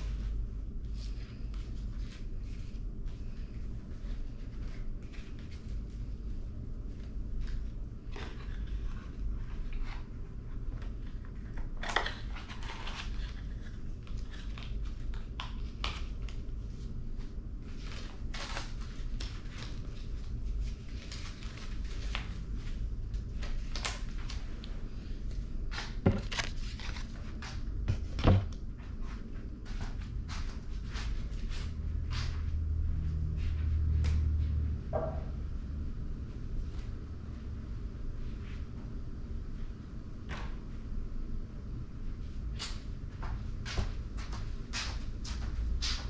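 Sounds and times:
steady low hum: 0.0s - 46.0s
paper and packaging rustling: 25.7s - 27.4s.

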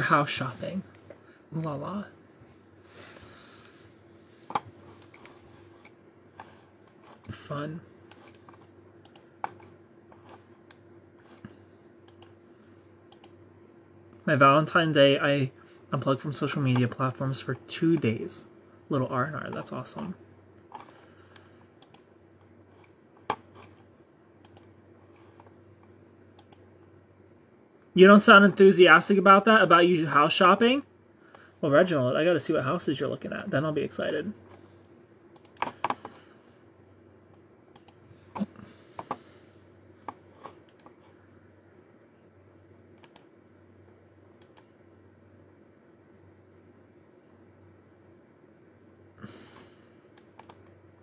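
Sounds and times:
low room hum: 0.0s - 51.0s
computer keys clicking: 9.0s - 9.7s, 12.0s - 12.4s, 13.1s - 13.4s, 21.4s - 22.5s, 24.4s - 24.8s, 25.8s - 26.9s, 37.7s - 38.0s, 42.7s - 43.4s, 44.3s - 44.7s, 50.2s - 50.8s
faint clicks and taps: 40.0s - 41.2s.

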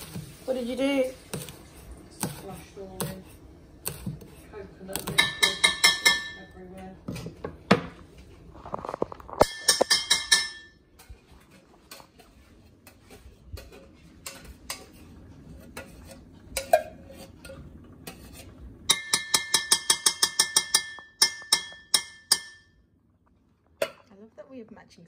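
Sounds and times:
kitchen clinks and knocks: 9.3s - 10.8s, 18.9s - 22.7s
spoon scraping inside a can: 11.2s - 18.7s.

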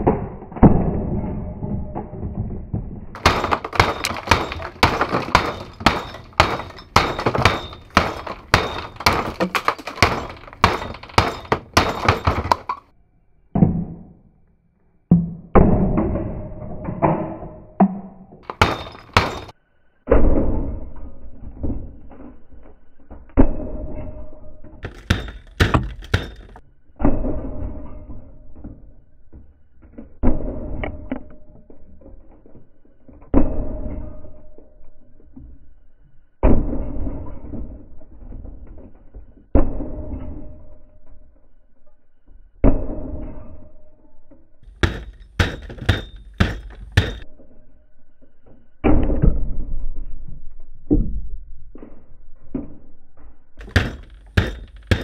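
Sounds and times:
plastic pieces clattering and breaking: 1.8s - 12.9s.

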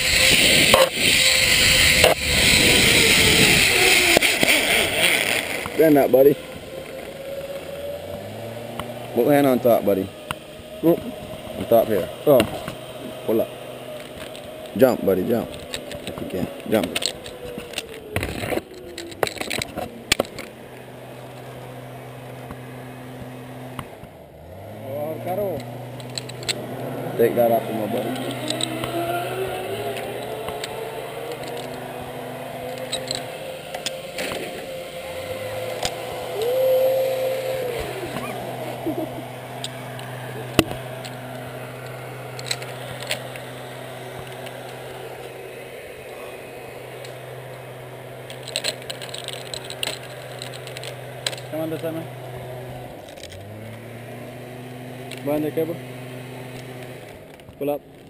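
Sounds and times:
metallic clicks of zipline gear: 0.0s - 9.2s, 13.9s - 20.5s, 25.3s - 45.4s, 48.2s - 52.0s
pulley humming along cable: 0.0s - 58.0s.

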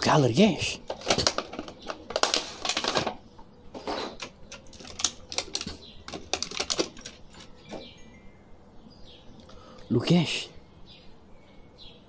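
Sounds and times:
plastic packaging crinkling: 0.1s - 7.8s.

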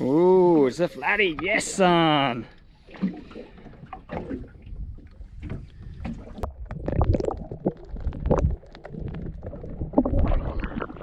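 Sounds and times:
water sloshing and gurgling: 0.0s - 11.0s
muffled underwater rumbling: 2.8s - 11.0s.

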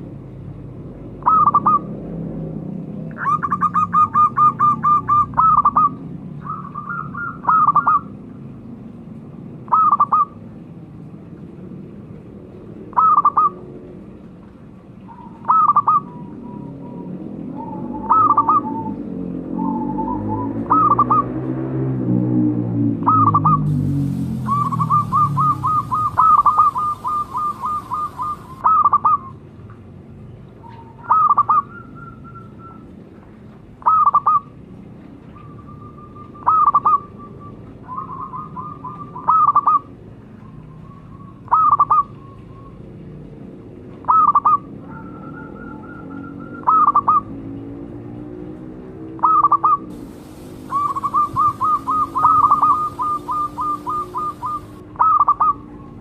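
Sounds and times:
dove calling clipped notes: 1.2s - 1.9s, 3.1s - 8.1s, 15.1s - 19.0s, 24.4s - 29.4s, 49.2s - 55.9s
soft drawn-out dove coos: 49.2s - 56.0s.

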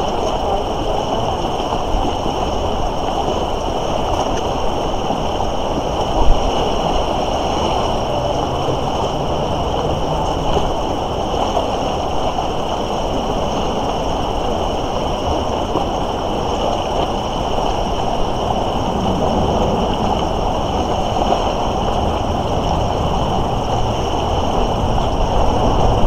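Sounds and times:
river water rushing: 0.0s - 26.0s.

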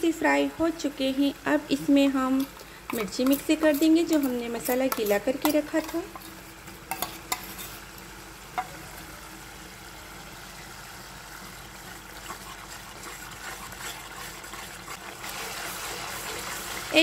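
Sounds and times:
masala sizzling in oil: 0.0s - 17.0s
spatula scraping: 2.3s - 7.9s, 12.2s - 17.0s.

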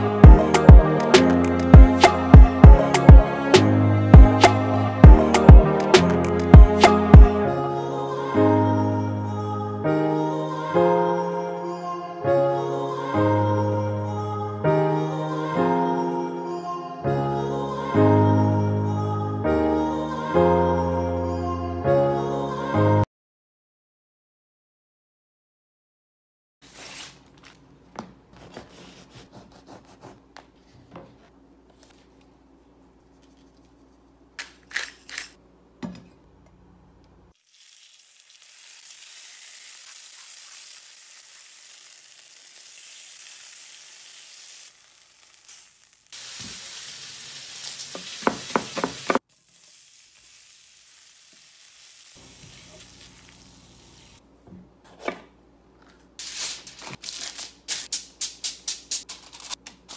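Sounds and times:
kitchen knocks and clinks: 35.8s - 36.2s
chicken sizzling in a skillet: 37.4s - 54.2s.

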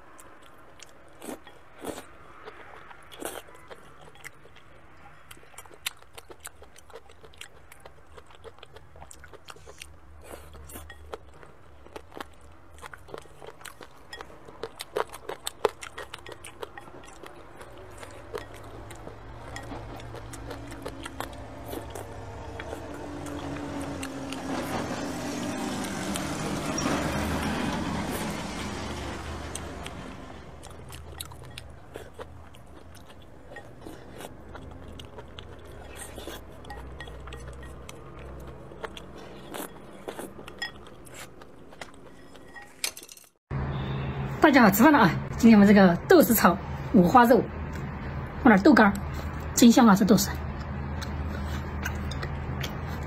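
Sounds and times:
chewing noodles: 0.0s - 42.8s, 50.2s - 53.0s
chopsticks clinking on a bowl: 15.9s - 20.2s, 34.9s - 38.3s, 39.4s - 43.4s.

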